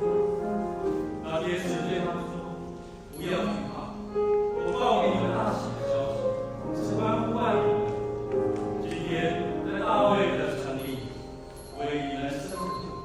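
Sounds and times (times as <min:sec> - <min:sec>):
church choir singing a hymn: 0:08.8 - 0:12.9.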